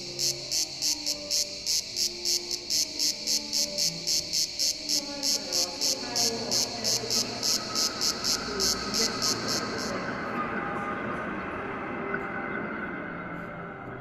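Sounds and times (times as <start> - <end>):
high chirps: 0.0 - 10.2.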